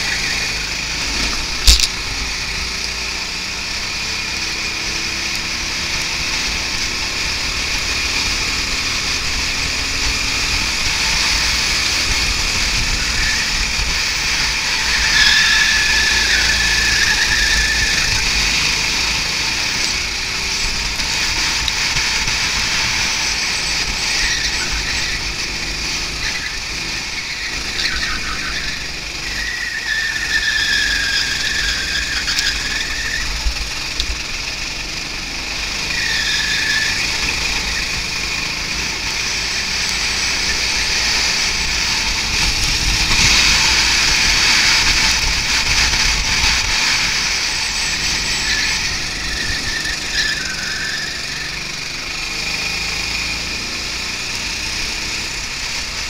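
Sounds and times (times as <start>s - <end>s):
go-kart engine: 0.0s - 56.0s
tyres squealing: 10.6s - 33.9s, 35.6s - 53.1s
wind noise: 41.0s - 50.1s.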